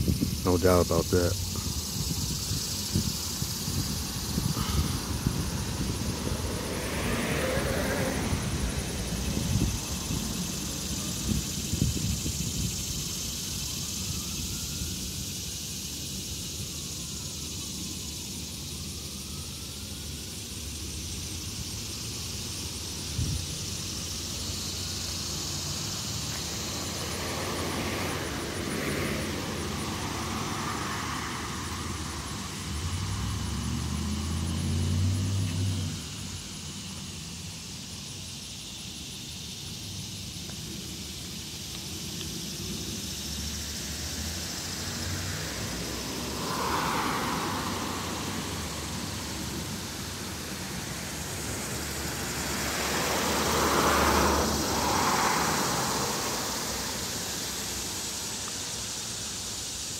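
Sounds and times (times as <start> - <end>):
cicadas buzzing: 0.0 - 59.9
car passing: 0.4 - 14.0, 18.8 - 38.4, 39.8 - 59.9.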